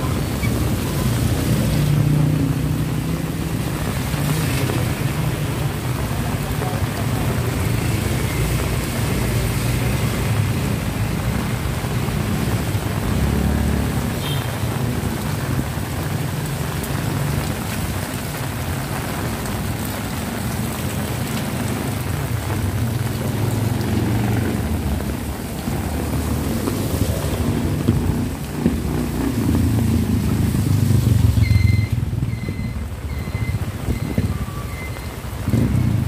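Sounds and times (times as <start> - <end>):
heavy rain on concrete: 0.0 - 36.0.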